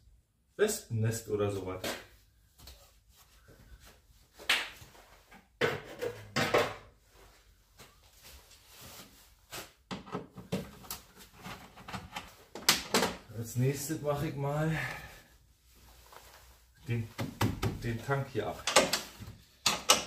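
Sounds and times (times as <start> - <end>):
tools and parts knocking scraping: 18.6 - 20.0.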